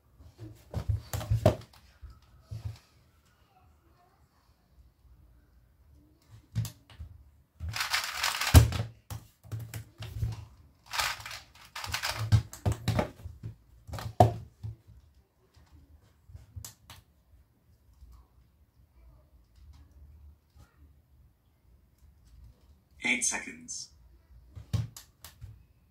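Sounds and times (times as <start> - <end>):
puzzle cube plastic clacking: 7.7 - 8.8, 10.9 - 13.0.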